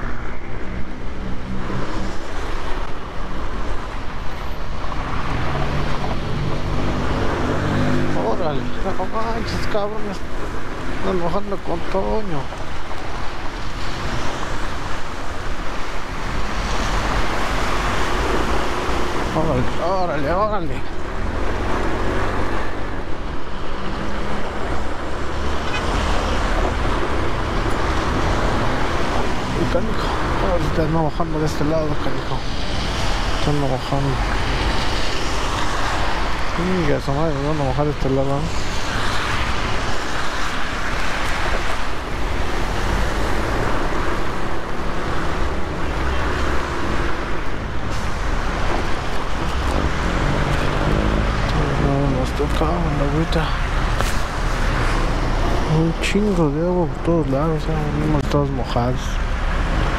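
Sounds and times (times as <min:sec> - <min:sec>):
wind and road noise: 0:00.0 - 0:59.9
tyre spray on wet road: 0:37.3 - 0:59.9.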